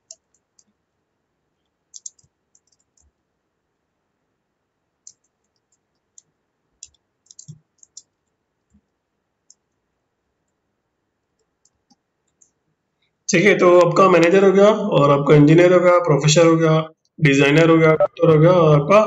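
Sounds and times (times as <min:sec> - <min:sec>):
keyboard keystroke clicks: 0:01.9 - 0:03.1, 0:05.1 - 0:08.1.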